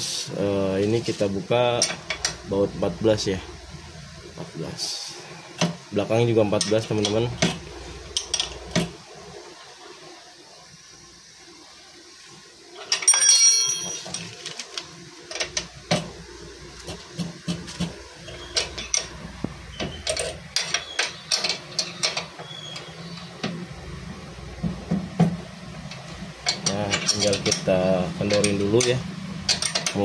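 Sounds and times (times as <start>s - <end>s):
spanner clanging on metal: 12.8s - 14.6s, 18.3s - 19.2s, 19.8s - 22.9s, 26.4s - 30.0s.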